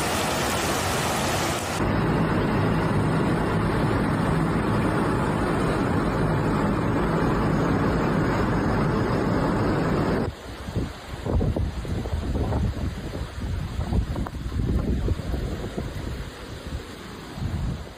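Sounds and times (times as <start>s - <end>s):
river torrent rushing: 0.0s - 17.9s.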